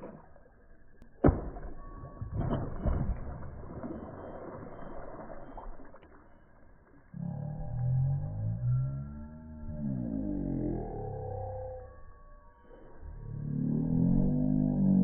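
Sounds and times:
fish splashing at surface: 0:01.3 - 0:07.1.

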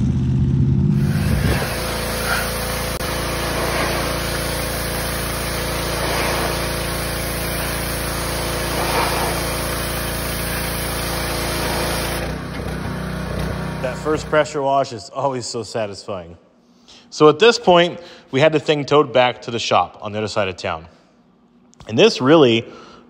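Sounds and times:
truck engine running: 0:00.0 - 0:14.4
pressure washer running: 0:00.9 - 0:14.6.

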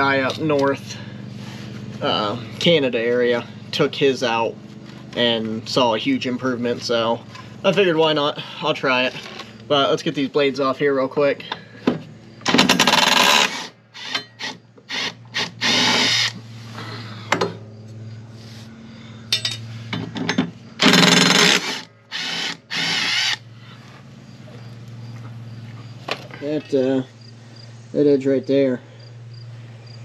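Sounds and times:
cordless power tool spinning bolts: 0:12.4 - 0:16.4, 0:20.8 - 0:23.4.

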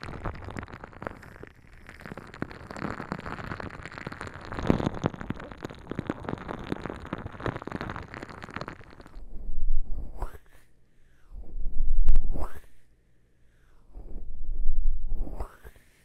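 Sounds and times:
squishy crackles of stress ball: 0:00.0 - 0:09.3.

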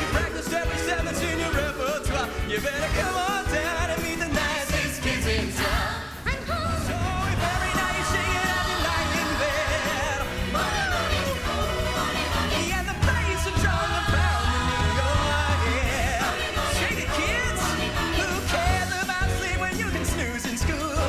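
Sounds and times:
man singing: 0:00.0 - 0:05.0, 0:12.5 - 0:21.0
band playing: 0:00.0 - 0:21.0
bass line: 0:00.0 - 0:21.0
ensemble voices singing: 0:00.0 - 0:21.0.

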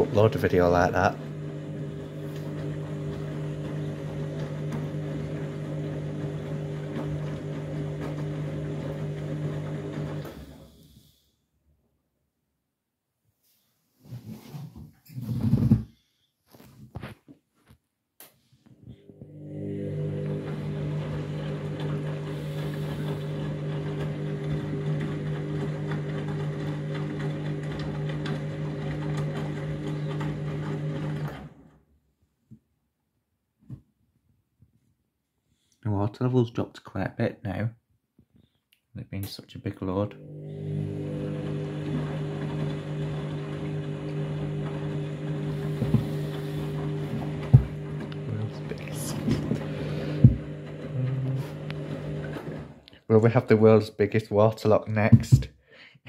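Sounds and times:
washing machine motor hum: 0:00.0 - 0:10.9, 0:18.8 - 0:31.8, 0:39.8 - 0:54.5.

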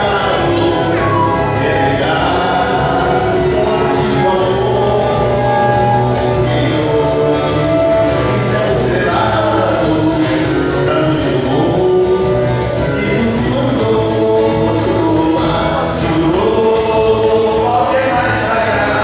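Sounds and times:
acoustic guitar: 0:00.0 - 0:19.0
cavaquinho: 0:00.0 - 0:19.0
men singing together: 0:00.0 - 0:19.0.

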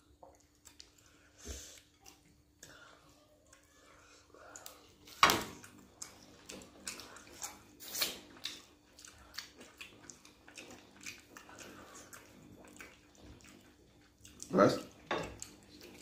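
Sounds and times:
chewing and lip-smacking: 0:00.0 - 0:02.8, 0:03.5 - 0:16.0.

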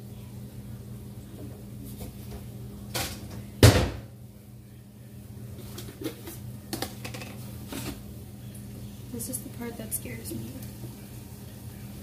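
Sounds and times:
steady low hum: 0:00.0 - 0:12.0
cabinet door shutting: 0:03.6 - 0:04.1.

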